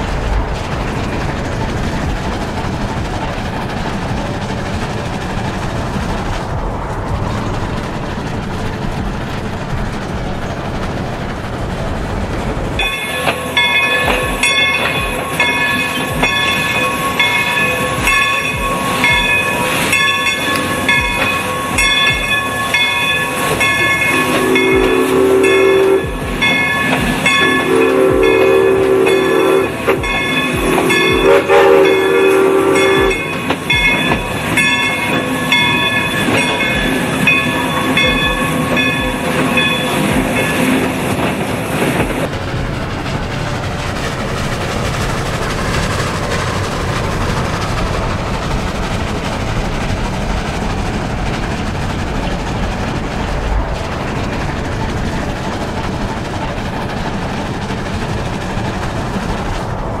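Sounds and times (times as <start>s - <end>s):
steam whistle blasts: 12.8s - 41.3s
locomotive bell ringing: 12.8s - 42.3s.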